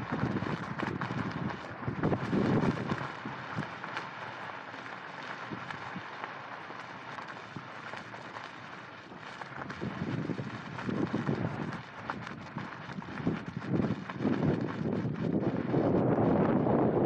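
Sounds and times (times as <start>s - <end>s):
strong wind buffeting microphone: 0.0s - 3.8s, 9.6s - 17.0s
faint ticks: 0.0s - 16.0s.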